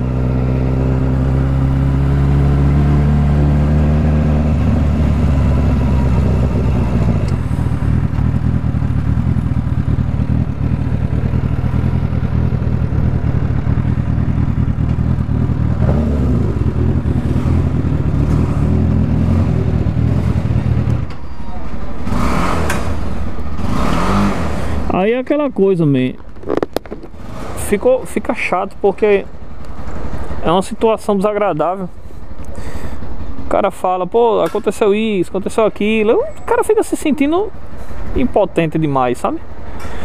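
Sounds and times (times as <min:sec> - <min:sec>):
motorcycle engine running: 0:00.0 - 0:21.1.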